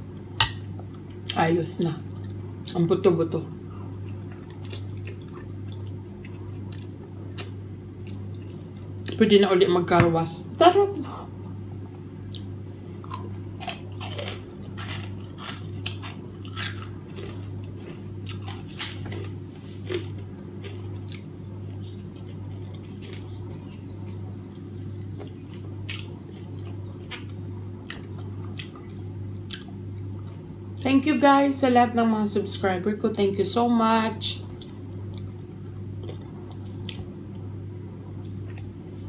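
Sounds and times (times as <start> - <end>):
steady low hum: 0.0 - 39.0
person chewing food: 4.0 - 9.2, 12.3 - 30.4, 34.6 - 38.7.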